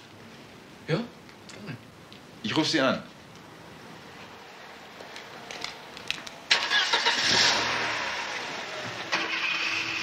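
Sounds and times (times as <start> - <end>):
car engine starting and running: 6.5 - 10.0.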